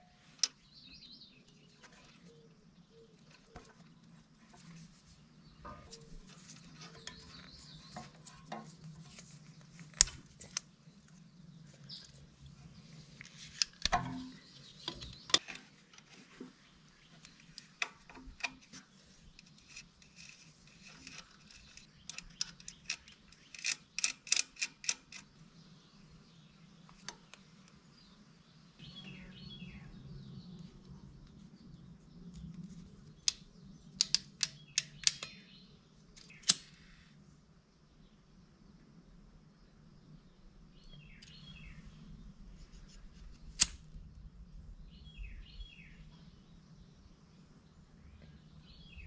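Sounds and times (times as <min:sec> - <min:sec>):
sharp metallic click: 0:19.4 - 0:25.3, 0:34.0 - 0:35.4, 0:36.2 - 0:36.8, 0:43.6 - 0:43.8.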